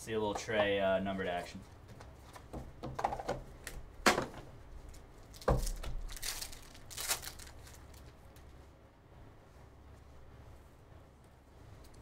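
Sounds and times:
foil wrapper crinkling: 0:05.2 - 0:08.5.

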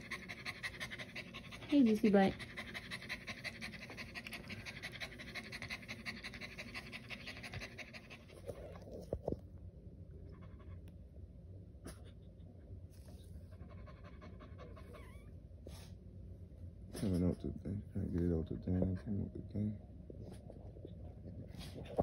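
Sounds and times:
dog panting heavily: 0:00.0 - 0:08.8, 0:13.5 - 0:15.0.

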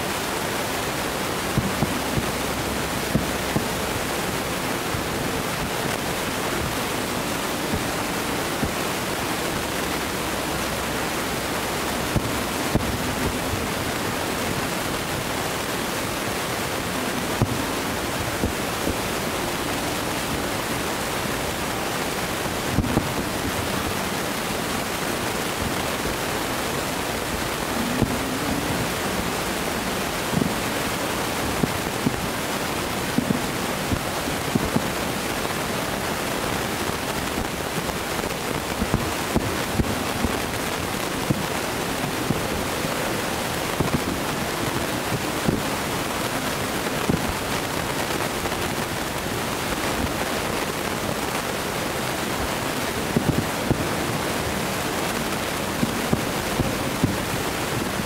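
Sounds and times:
steady rushing noise: 0:00.0 - 0:58.0
distant fireworks thumps: 0:01.4 - 0:04.0, 0:33.1 - 0:34.9.

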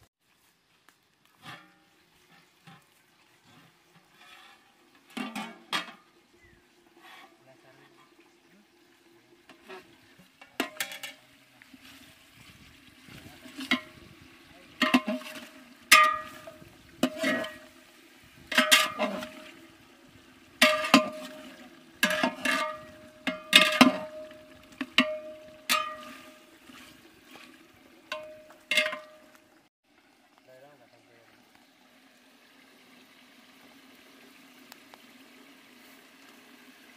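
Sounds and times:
metal ladle clanking in pot: 0:10.4 - 0:11.2, 0:14.8 - 0:17.7, 0:18.5 - 0:19.5, 0:20.6 - 0:26.4, 0:28.1 - 0:29.4.

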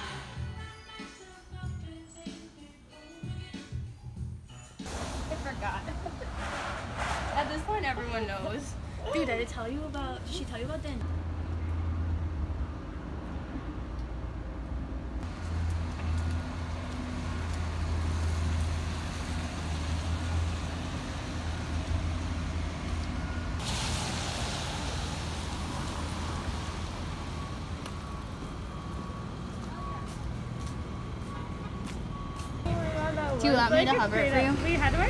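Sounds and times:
heavy vehicle engine rumble: 0:04.9 - 0:09.0, 0:09.8 - 0:35.0
loud hiss: 0:23.6 - 0:25.8.

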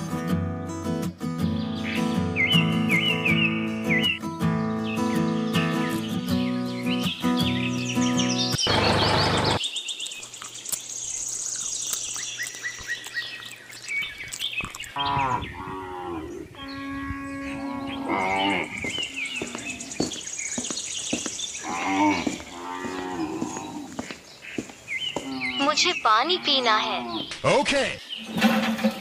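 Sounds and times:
birds chirping: 0:01.4 - 0:29.0
cows mooing: 0:15.0 - 0:20.0, 0:21.6 - 0:24.0, 0:25.2 - 0:27.3.

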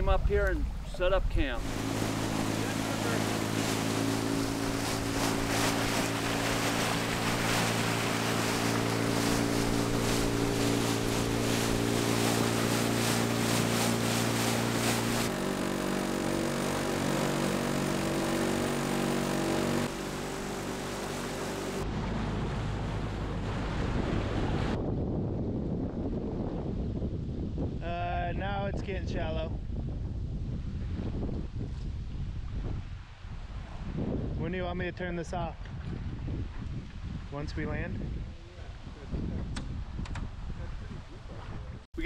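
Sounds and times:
boat motor running: 0:00.0 - 0:24.8
water noise: 0:00.0 - 0:26.1
wind: 0:00.0 - 0:42.0.

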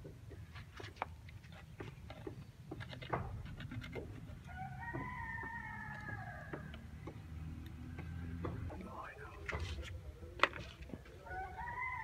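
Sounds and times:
rooster crowing: 0:04.4 - 0:07.2, 0:11.2 - 0:12.0.

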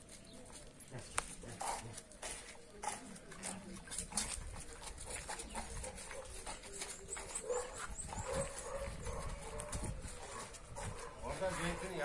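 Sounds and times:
footsteps on gravel: 0:00.0 - 0:12.0
wind rumble on microphone: 0:07.9 - 0:11.5.

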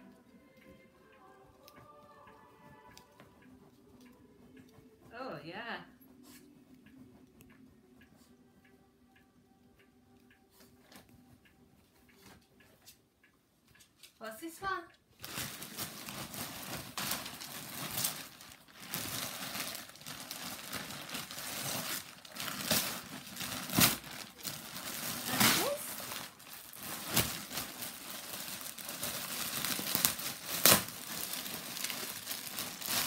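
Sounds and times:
paper and plastic crinkling: 0:15.2 - 0:33.0.

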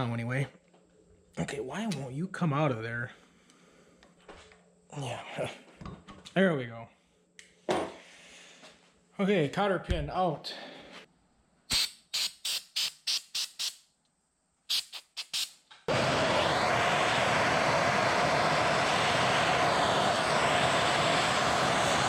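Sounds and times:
aerosol spray bursts: 0:11.7 - 0:13.8, 0:14.7 - 0:22.0
gas torch hissing: 0:11.7 - 0:13.8, 0:14.7 - 0:22.0.

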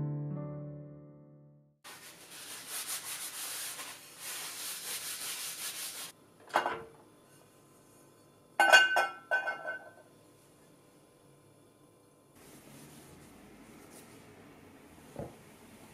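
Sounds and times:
cloth rubbing on skillet: 0:01.8 - 0:06.2, 0:12.4 - 0:14.5.

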